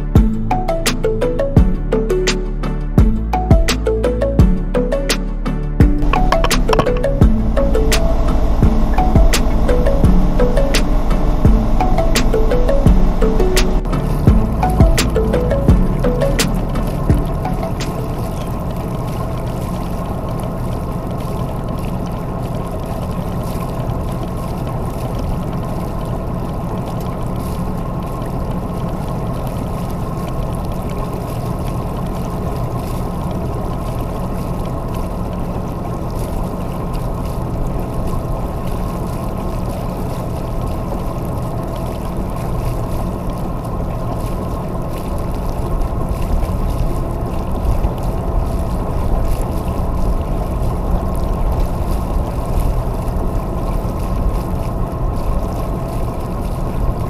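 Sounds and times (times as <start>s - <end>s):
boat engine droning: 0.0s - 57.0s
water washing: 0.0s - 57.0s
wind: 0.0s - 57.0s.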